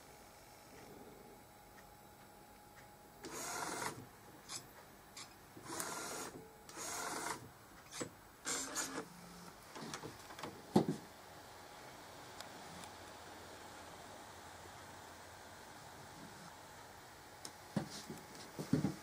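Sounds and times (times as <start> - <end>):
inkjet printer mechanism running: 3.2 - 4.6, 5.6 - 9.1.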